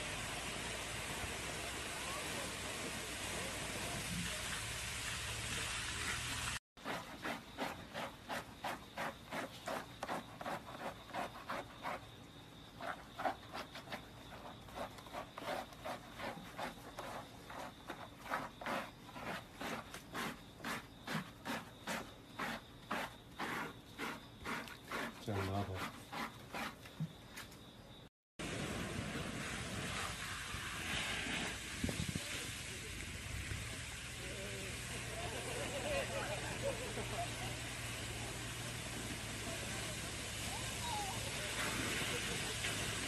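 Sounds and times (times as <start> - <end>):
water spray hiss: 0.0 - 6.6, 28.4 - 43.0
hands scrubbing wet fur: 5.5 - 12.1, 12.8 - 26.8.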